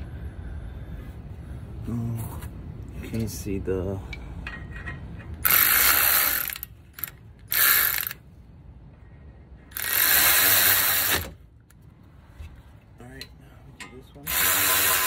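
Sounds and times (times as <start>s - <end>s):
electric ratchet spinning bolt: 5.4s - 8.2s, 9.7s - 11.4s, 14.3s - 15.0s.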